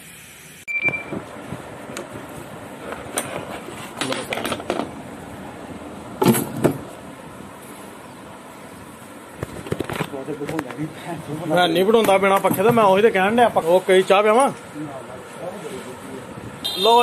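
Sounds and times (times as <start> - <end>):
faint road traffic: 0.0 - 17.0.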